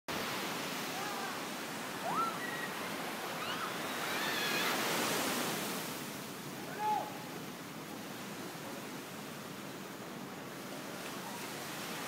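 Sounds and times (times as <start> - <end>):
whistled bird calls: 2.1 - 2.8.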